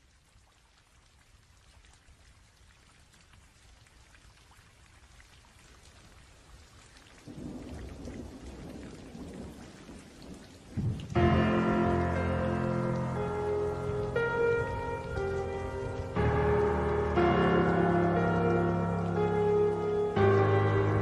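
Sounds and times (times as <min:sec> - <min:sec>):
rain falling: 0:00.0 - 0:21.0
thunder rumbling: 0:07.3 - 0:21.0.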